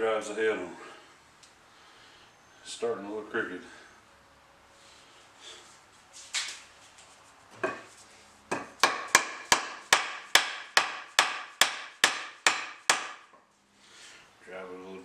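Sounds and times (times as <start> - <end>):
mallet knocking wooden handle: 8.5 - 13.2.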